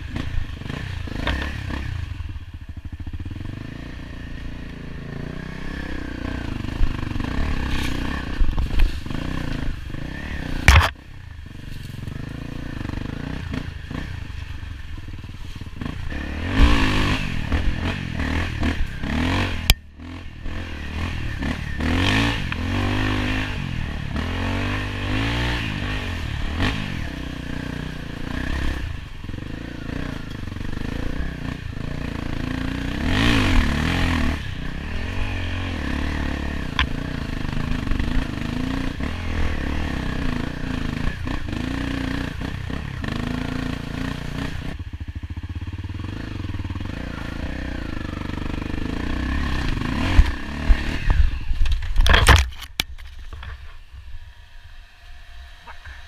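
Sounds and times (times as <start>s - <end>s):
dirt bike engine revving: 0.0s - 52.4s.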